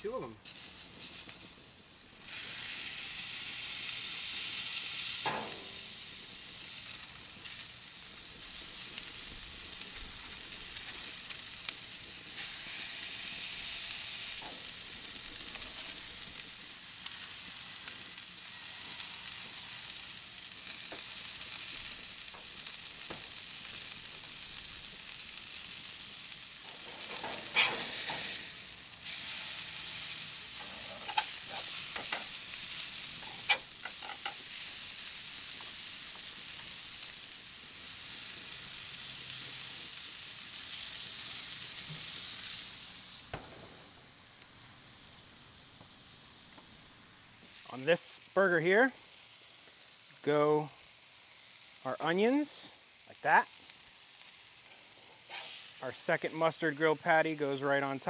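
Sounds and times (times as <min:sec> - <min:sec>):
burgers sizzling on a griddle: 0:00.0 - 0:58.0.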